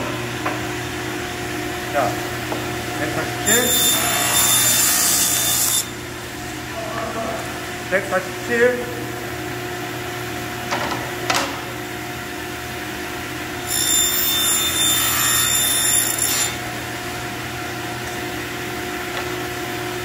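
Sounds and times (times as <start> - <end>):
table saw motor hum: 0.0 - 6.8, 12.4 - 20.0
saw blade cutting plywood: 3.4 - 6.0, 13.6 - 16.7.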